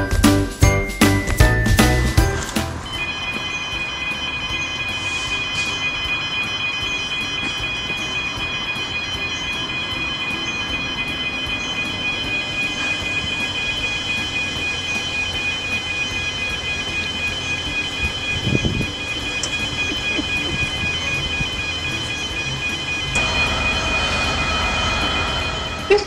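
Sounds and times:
level crossing alarm warbling: 0.0s - 26.0s
passing train rumble: 1.2s - 26.0s
car passing: 19.7s - 26.0s.

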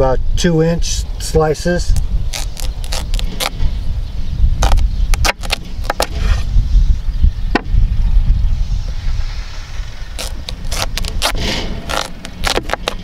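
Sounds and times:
steady low rumble: 0.0s - 13.0s
knife crunching through squash: 1.9s - 3.6s, 4.6s - 6.5s, 10.2s - 13.0s.

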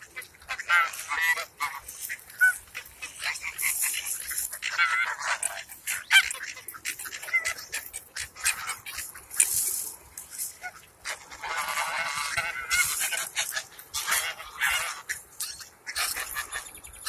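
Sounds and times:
clicks and rustles from birds: 0.0s - 17.0s
geese honking: 0.0s - 17.0s.

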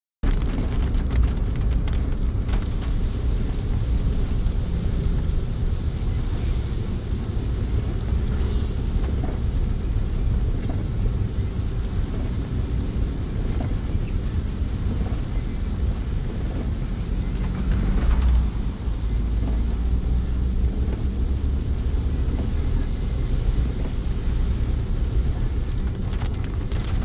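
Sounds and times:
car driving on wet road: 0.2s - 27.0s
rain on windscreen: 0.2s - 27.0s.

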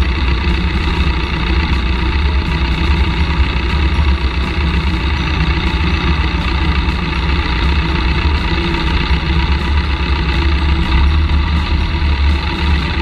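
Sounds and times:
small plane engine droning: 0.0s - 13.0s.

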